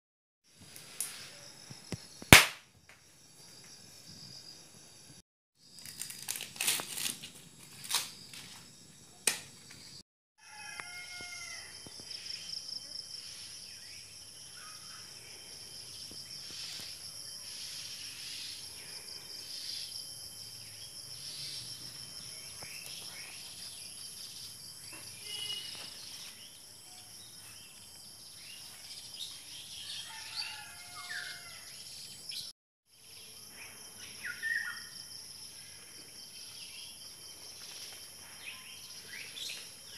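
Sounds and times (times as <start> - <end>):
high insect drone: 2.9 - 32.1.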